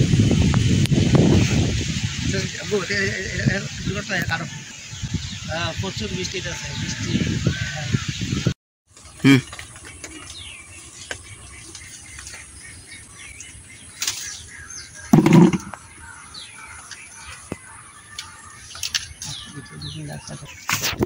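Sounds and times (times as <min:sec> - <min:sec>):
small birds chirping: 0:02.3 - 0:21.0
loud bump: 0:15.1 - 0:15.8.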